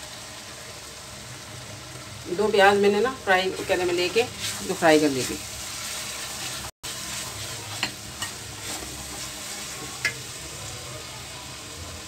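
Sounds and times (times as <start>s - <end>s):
masala sizzling in oil: 0.0s - 12.0s
spatula stirring and scraping: 3.4s - 10.3s.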